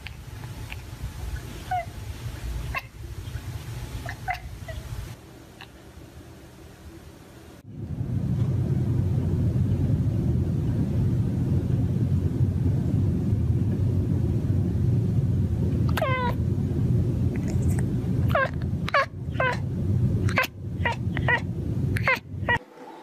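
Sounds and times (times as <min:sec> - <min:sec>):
cat meowing: 0:04.0 - 0:04.9, 0:15.9 - 0:16.4
cat purring: 0:17.2 - 0:22.6.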